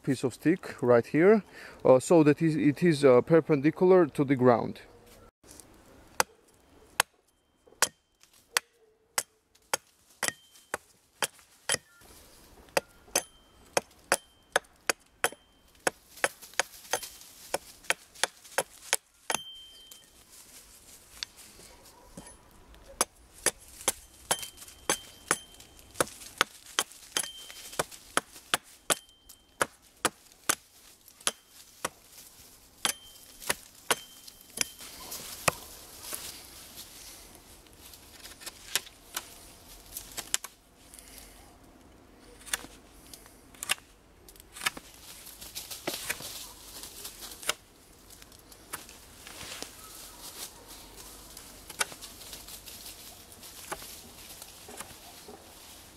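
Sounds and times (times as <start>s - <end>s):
hatchet chopping wood: 7.0s - 11.9s, 12.7s - 19.6s, 23.0s - 32.0s, 32.8s - 34.8s.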